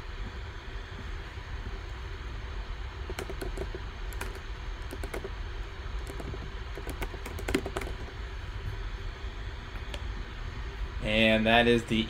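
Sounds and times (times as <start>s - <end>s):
steady low hum: 0.0s - 12.0s
keyboard typing: 3.0s - 5.4s, 6.0s - 8.1s.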